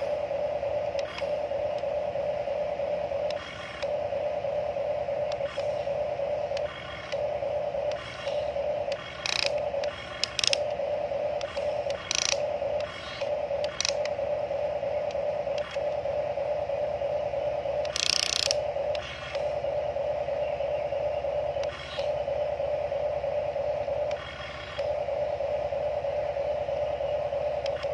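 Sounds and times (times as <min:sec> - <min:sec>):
toy excavator motors whining: 0:07.9 - 0:10.8, 0:11.4 - 0:14.2, 0:17.8 - 0:19.6, 0:21.6 - 0:22.2.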